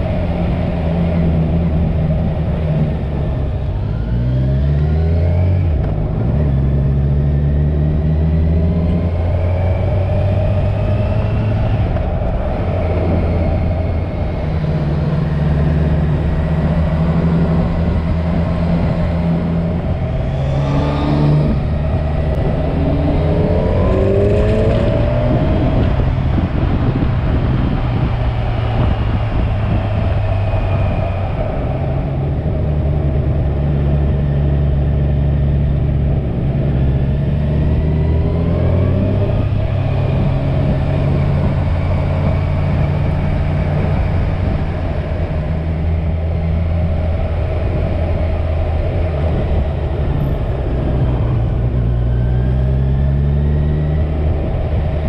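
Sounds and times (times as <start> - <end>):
motorcycle engine: 0.0 - 55.0
wind rushing: 9.1 - 34.3.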